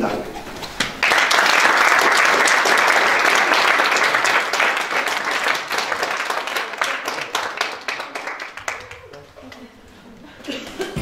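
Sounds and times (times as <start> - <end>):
audience applauding: 1.0 - 9.4.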